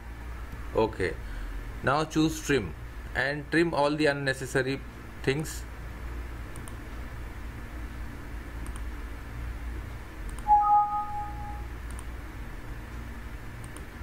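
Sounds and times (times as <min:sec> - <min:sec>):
faint clicks: 0:08.6 - 0:08.9
two-note alert chime: 0:10.5 - 0:11.7.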